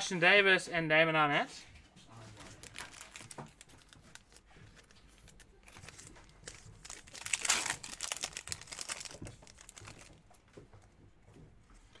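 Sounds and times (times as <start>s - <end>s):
foil wrapper tearing and crinkling: 2.5s - 10.2s.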